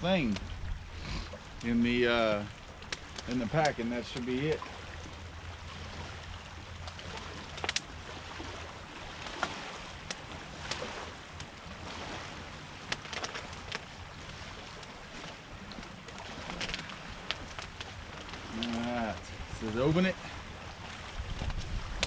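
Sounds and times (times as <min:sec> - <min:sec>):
campfire crackling and popping: 0:00.0 - 0:22.0.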